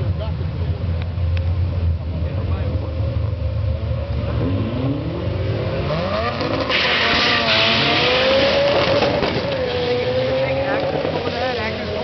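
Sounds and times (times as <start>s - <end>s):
drag car engines accelerating: 0.0s - 12.0s.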